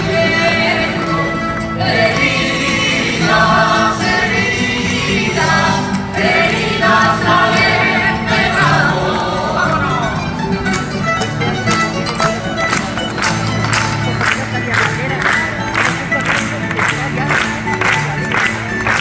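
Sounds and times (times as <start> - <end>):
group of voices singing: 0.0 - 10.3
plucked guitars: 0.0 - 19.0.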